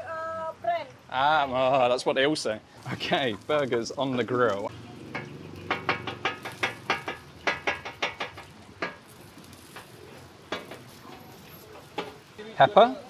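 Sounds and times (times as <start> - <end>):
faint sizzle: 0.1 - 13.0
spatula tapping on griddle: 5.1 - 12.3.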